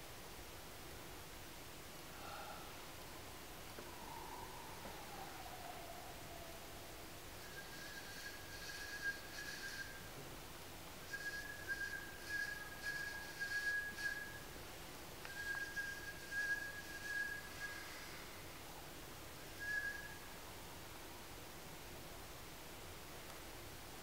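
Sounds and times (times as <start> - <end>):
breathy hiss: 2.0 - 5.3, 16.4 - 18.8
person whistling high note: 7.4 - 10.1, 11.1 - 14.5, 15.3 - 18.2, 19.6 - 20.3.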